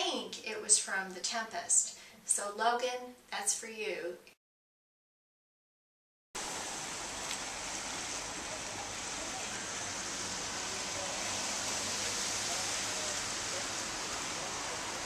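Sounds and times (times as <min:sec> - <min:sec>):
rain falling: 0:06.4 - 0:15.0.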